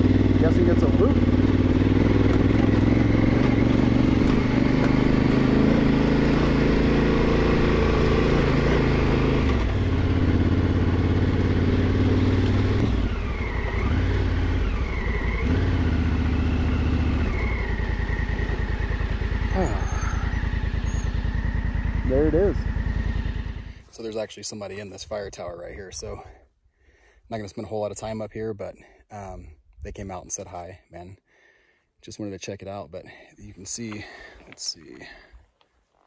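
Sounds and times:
motorcycle engine climbing: 0.0s - 26.1s.

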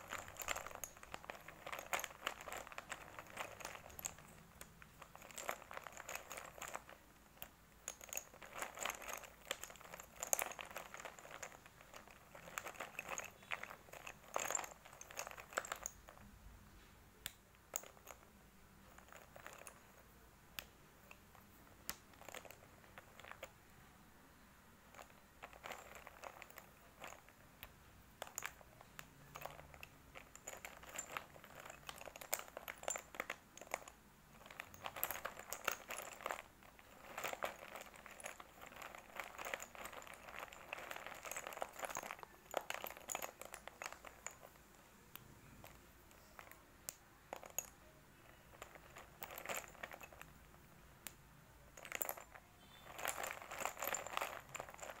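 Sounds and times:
chalk sticks clattering: 28.2s - 44.6s, 51.8s - 55.0s.

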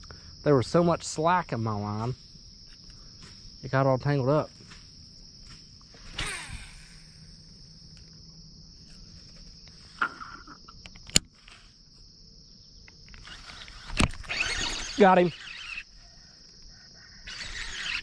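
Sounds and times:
high-pitched insect chorus: 0.0s - 18.0s
short whir falling in pitch: 6.0s - 7.6s, 13.2s - 15.9s, 17.2s - 18.0s
sharp click: 10.8s - 11.6s.

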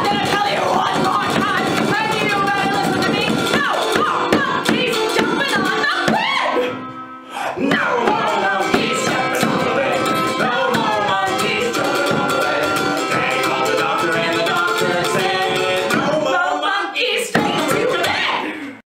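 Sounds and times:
man singing: 0.0s - 2.5s, 7.5s - 16.7s
frame drum struck with beater: 7.7s - 16.2s
small stringed instrument strummed: 7.7s - 16.3s.

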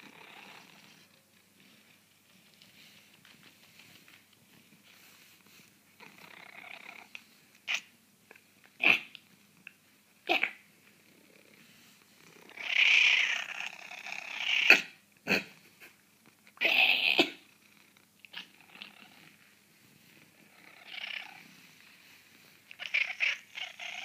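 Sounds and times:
cat raspy calls: 7.7s - 7.9s, 12.5s - 15.4s, 16.6s - 17.4s, 22.7s - 24.0s.

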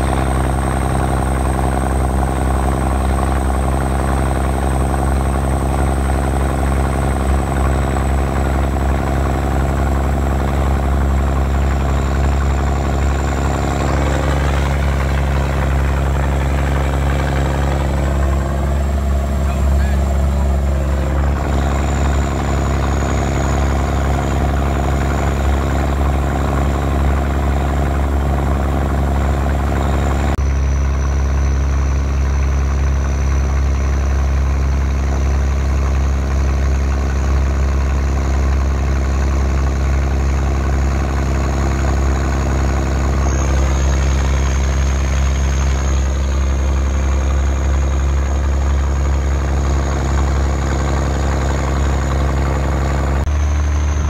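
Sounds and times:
truck engine droning: 0.0s - 54.0s.

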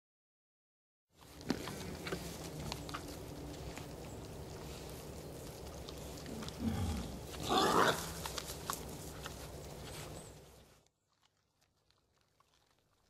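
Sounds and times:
dry leaves crackling: 1.2s - 12.9s
wild boar grunting: 5.9s - 8.3s.

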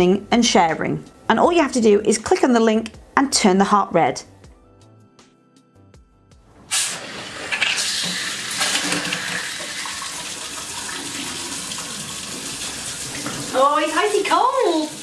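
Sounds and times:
tap water gushing into steel sink: 6.7s - 15.0s.

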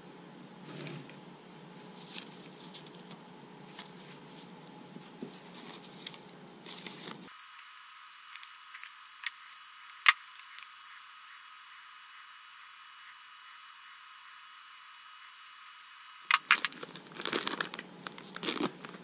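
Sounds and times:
cardboard packaging rustling: 16.3s - 19.0s.

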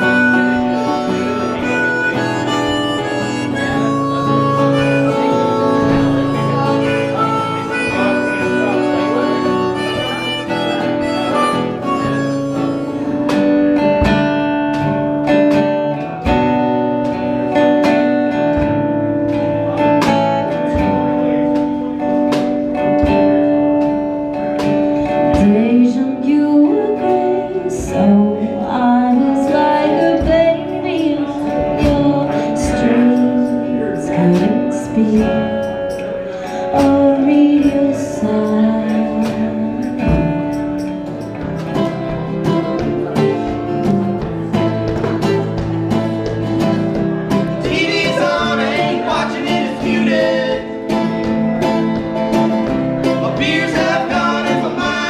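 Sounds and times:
acoustic guitar: 0.0s - 55.0s
woman singing: 25.2s - 40.4s, 47.6s - 50.8s.

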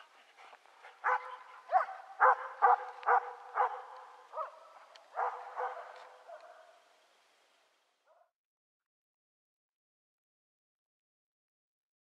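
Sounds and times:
dog barking: 1.0s - 6.8s, 8.1s - 8.3s.

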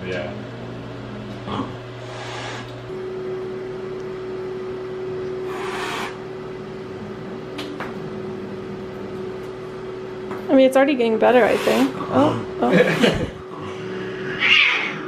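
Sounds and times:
fan humming: 0.0s - 15.0s.

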